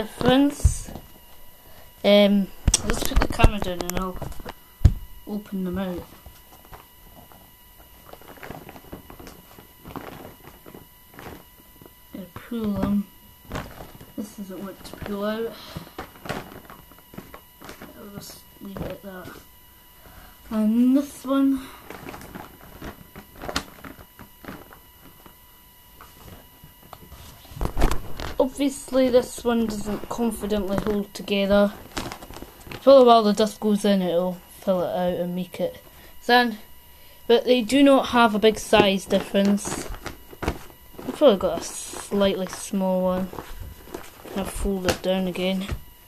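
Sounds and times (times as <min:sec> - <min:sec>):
low handling thumps: 0:03.3 - 0:05.2
paper rustling and crinkling: 0:05.4 - 0:19.5, 0:21.6 - 0:33.6, 0:37.8 - 0:46.0
stiff paper rustling: 0:37.8 - 0:45.9.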